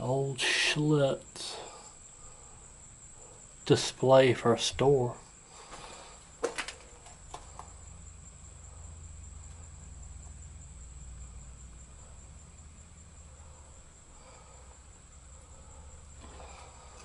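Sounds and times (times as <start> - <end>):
low steady rumble: 7.0 - 17.0.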